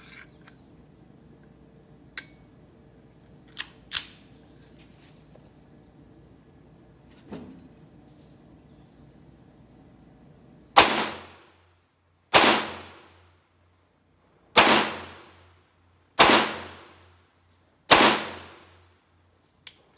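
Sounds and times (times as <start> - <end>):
pistol shots with echo: 10.8 - 11.4, 12.3 - 13.2, 14.6 - 15.4, 16.2 - 17.1, 17.9 - 18.7.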